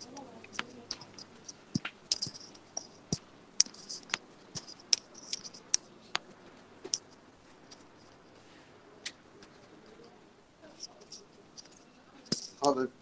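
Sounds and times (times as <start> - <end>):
sharp clicks and taps: 0.0 - 8.2, 10.8 - 12.8.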